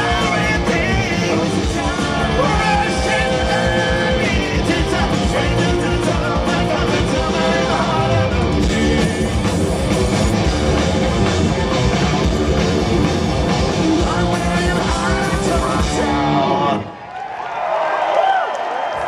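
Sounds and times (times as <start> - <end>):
shouted lead vocal: 0.0 - 10.6, 13.7 - 17.0
fast drums: 0.0 - 16.7
bass guitar: 0.0 - 16.9
distorted electric guitars: 0.0 - 17.0.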